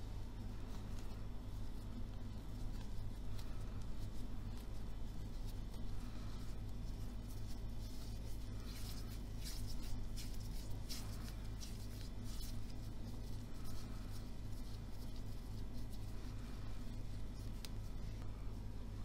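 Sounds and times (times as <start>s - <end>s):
hands rustling dough: 0.0s - 19.0s
steady low hum: 0.0s - 19.0s.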